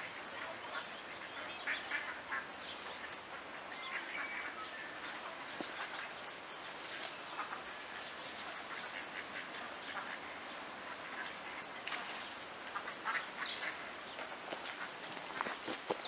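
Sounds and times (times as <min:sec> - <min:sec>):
ducks quacking: 0:00.0 - 0:16.0.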